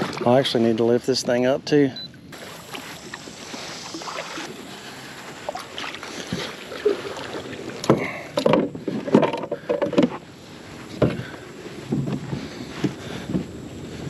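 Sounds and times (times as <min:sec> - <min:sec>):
gear knocking on a kayak: 0:07.8 - 0:10.2.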